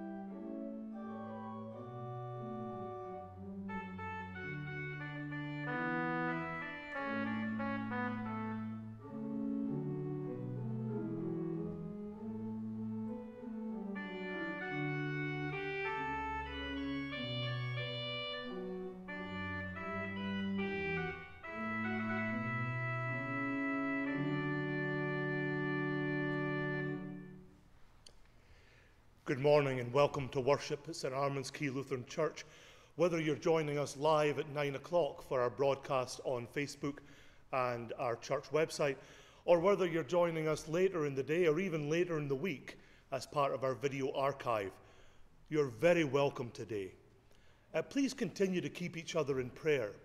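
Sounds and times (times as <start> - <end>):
church organ playing chords: 0.0 - 27.6.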